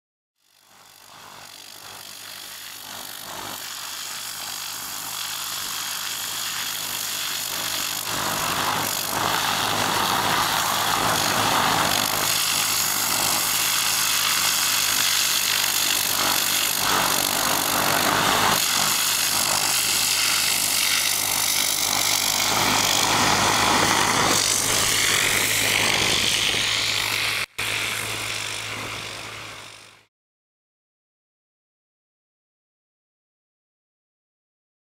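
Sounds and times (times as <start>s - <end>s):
pump engine hum: 0.6s - 30.1s
pressure washer jet hissing: 2.2s - 30.0s.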